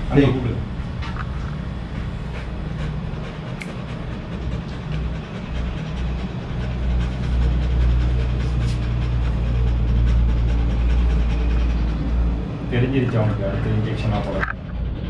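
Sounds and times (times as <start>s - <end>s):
low engine-like rumble: 0.0s - 15.0s.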